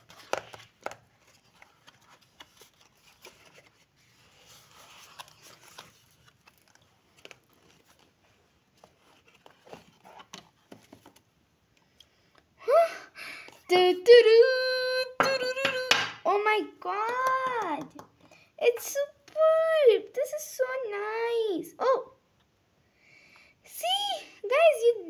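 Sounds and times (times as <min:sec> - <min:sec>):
cardboard rustling slide: 0:00.0 - 0:11.2.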